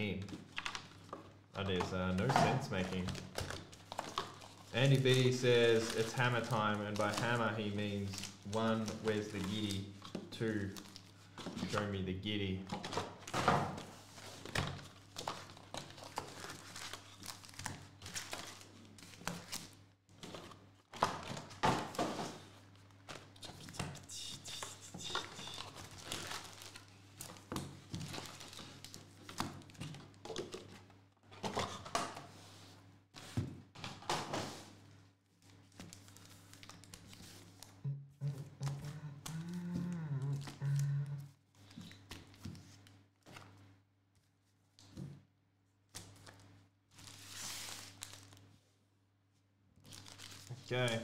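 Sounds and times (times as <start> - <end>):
foil packs crinkling: 0.4 - 12.0, 12.8 - 22.0, 24.6 - 30.6, 35.4 - 37.7, 46.0 - 48.5, 49.8 - 51.0.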